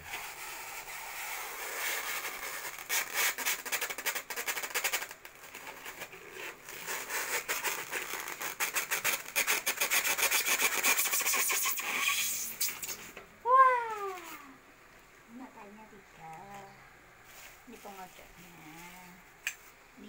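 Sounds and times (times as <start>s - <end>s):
styrofoam rubbing and scraping: 0.0s - 13.2s.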